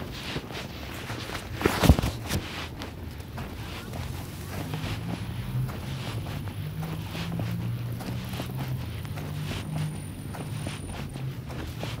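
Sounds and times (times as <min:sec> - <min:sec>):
footsteps through dry grass: 0:00.0 - 0:12.0
steady low hum: 0:02.9 - 0:12.0.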